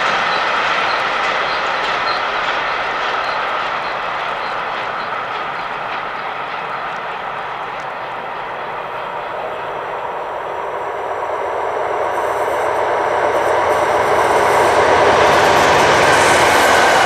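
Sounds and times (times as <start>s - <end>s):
diesel locomotive engine: 0.0s - 17.0s
train wheels on rails: 0.0s - 17.0s.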